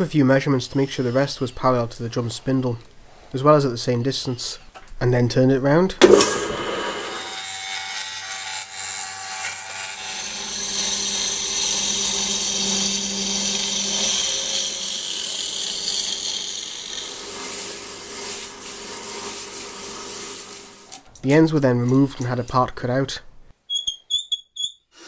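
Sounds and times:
chisel cutting spinning wood: 6.1 - 20.7
electric motor hum: 9.5 - 17.8.

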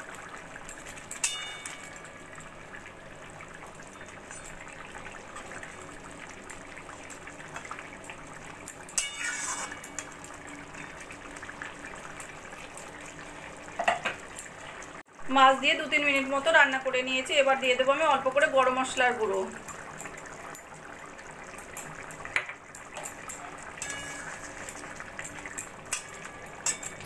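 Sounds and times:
curry simmering: 0.0 - 27.0
spatula scraping and clinking on wok: 8.9 - 10.0, 23.8 - 27.0.

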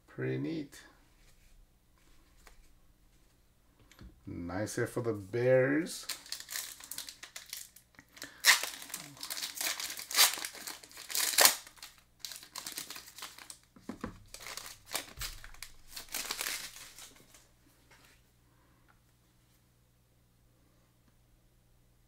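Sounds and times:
foil wrapper crinkling and tearing: 6.0 - 17.4.

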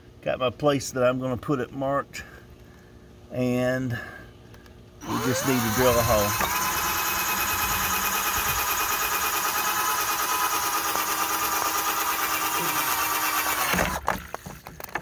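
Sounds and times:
drill whining: 5.0 - 14.2.

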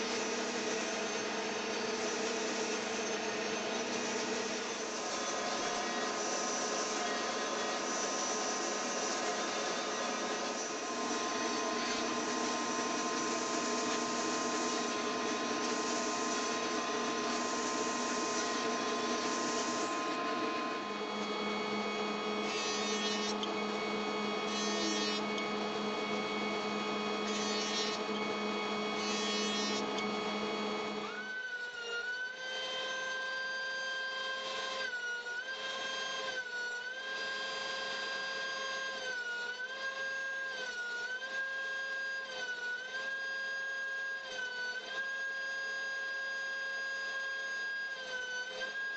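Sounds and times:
power saw machine hum: 0.0 - 31.4
thickness planer motor: 0.0 - 48.9.

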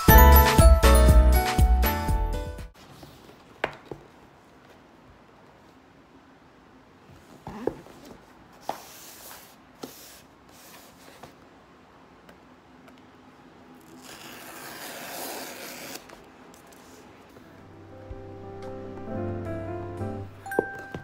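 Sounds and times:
tear strip ripping cardboard: 13.8 - 16.1.

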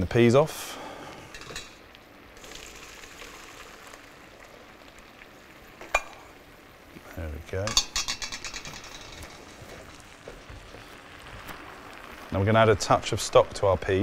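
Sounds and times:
pan knocks and rattles: 7.7 - 9.4.

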